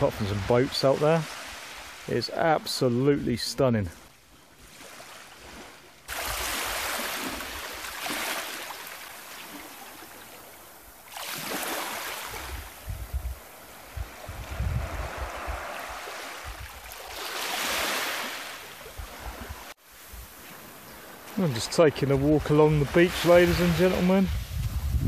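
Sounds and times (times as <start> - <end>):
waves washing up a beach: 0.0 - 25.0
wind buffeting microphone: 12.2 - 17.0, 18.9 - 20.4, 22.0 - 25.0.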